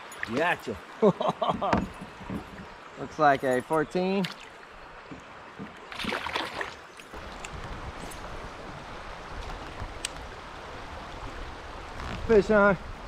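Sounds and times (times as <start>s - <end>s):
fish splashing: 5.8s - 7.4s.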